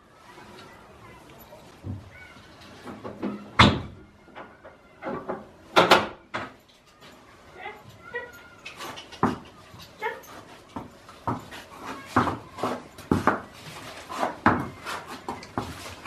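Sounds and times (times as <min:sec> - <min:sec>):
sharp knocks and clatters: 0:02.8 - 0:06.6, 0:08.7 - 0:10.0, 0:10.7 - 0:16.0.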